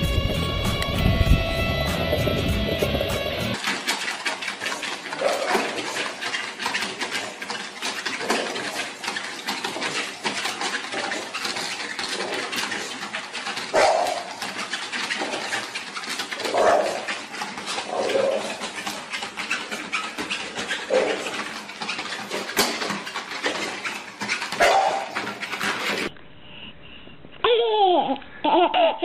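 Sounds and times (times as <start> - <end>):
claws clicking on treadmill belt: 2.0 - 26.1
puppy yapping and whining: 24.6 - 25.2.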